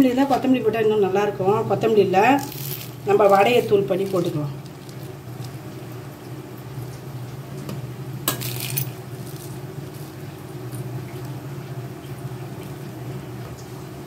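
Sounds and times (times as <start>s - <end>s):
fried snack crumbling by hand: 2.4s - 5.7s.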